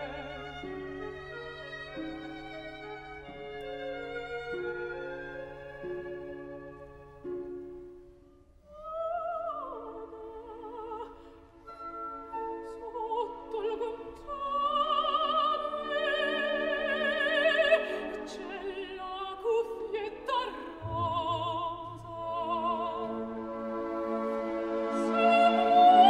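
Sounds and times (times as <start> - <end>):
operatic singing voice: 12.8 - 23.4, 25.0 - 26.0
orchestral accompaniment: 20.6 - 26.0.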